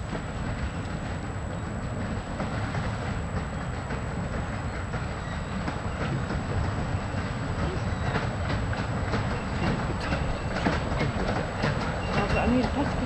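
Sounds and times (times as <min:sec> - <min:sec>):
steam train rumbling: 0:00.0 - 0:13.0
wheels clicking on rails: 0:00.0 - 0:13.0.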